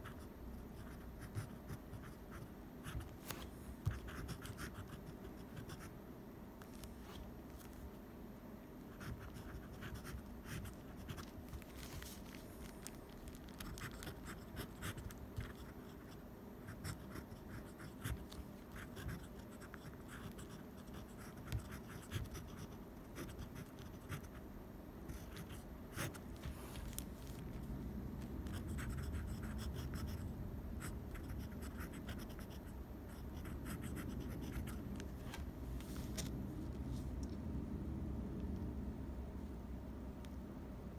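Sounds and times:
pen nib scratching on paper: 0.0s - 3.2s, 3.8s - 5.9s, 8.9s - 11.4s, 13.2s - 24.4s, 25.1s - 26.9s, 28.4s - 30.2s, 30.8s - 34.9s.

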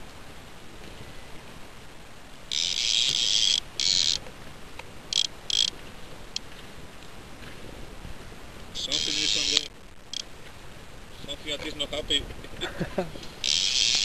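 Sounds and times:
fishing reel drag buzzing: 2.5s - 4.3s, 5.1s - 6.4s, 8.8s - 10.3s, 13.4s - 14.0s.

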